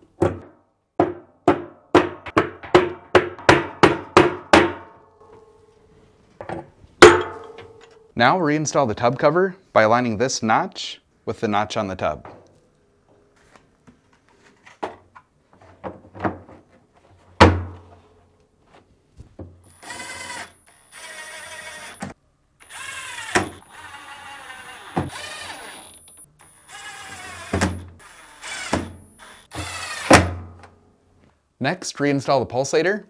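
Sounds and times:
cordless drill running: 0:19.7 - 0:30.2.

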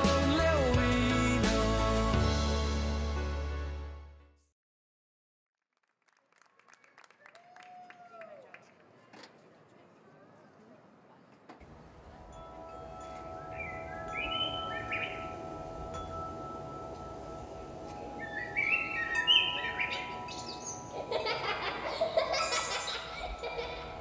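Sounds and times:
held chord of steady tones: 0:11.8 - 0:24.0
birds chirping: 0:12.2 - 0:24.0
chime-like shimmer: 0:12.2 - 0:24.0.

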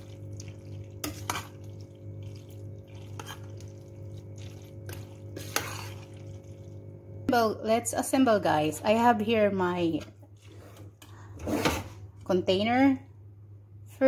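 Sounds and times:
spoon stirring thick sauce: 0:00.0 - 0:06.7
steady low hum: 0:00.0 - 0:14.0
spoon scraping and clinking on pot: 0:05.4 - 0:06.1.

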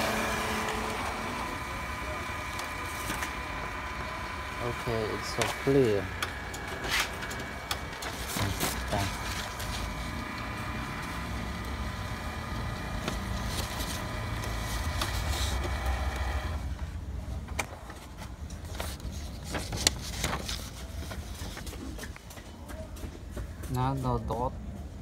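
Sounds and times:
printer motor hum with whining tones: 0:00.0 - 0:17.8.

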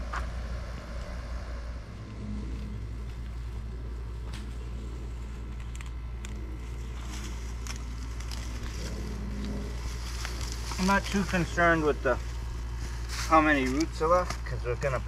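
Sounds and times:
low mechanical hum: 0:00.0 - 0:15.0.

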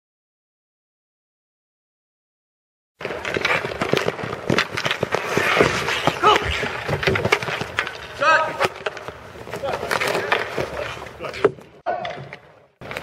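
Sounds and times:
sticks and ball clattering: 0:03.0 - 0:13.0
person shouting: 0:06.2 - 0:06.6.

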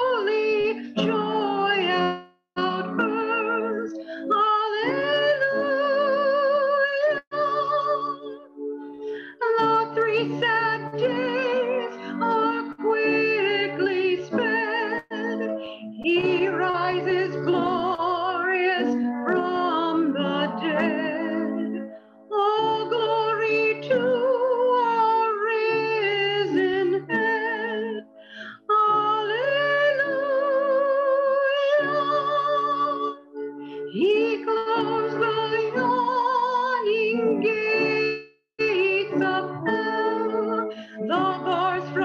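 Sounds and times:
woman singing with vibrato: 0:00.0 - 0:08.5, 0:09.3 - 0:28.0, 0:28.6 - 0:33.2, 0:33.9 - 0:42.0
singer breathing: 0:03.9 - 0:04.3, 0:08.9 - 0:09.4, 0:15.5 - 0:16.0, 0:28.1 - 0:28.7, 0:33.5 - 0:33.9.

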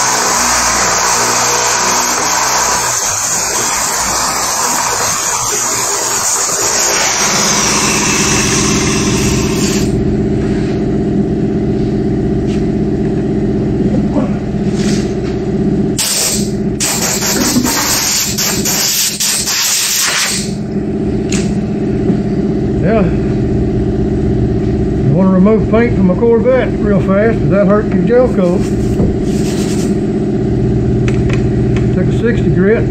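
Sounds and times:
air sander hissing: 0:00.0 - 0:10.8, 0:16.0 - 0:20.6, 0:28.4 - 0:30.1
machine hum: 0:00.0 - 0:19.2, 0:20.4 - 0:32.9.

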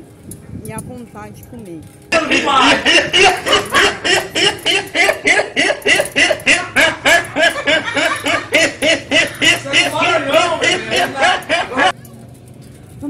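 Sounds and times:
boy laughing hard: 0:02.2 - 0:11.9.

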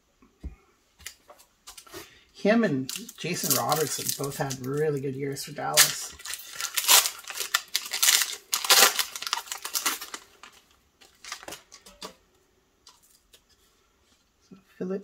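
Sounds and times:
faint rustles and clicks of cards: 0:00.2 - 0:02.3, 0:05.8 - 0:14.5
foil wrapper crinkling and tearing: 0:02.8 - 0:12.2.

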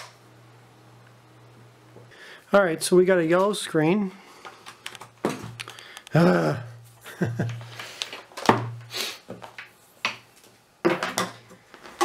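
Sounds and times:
cables and plugs clicking: 0:04.4 - 0:06.2
man humming hmm: 0:06.1 - 0:06.8.

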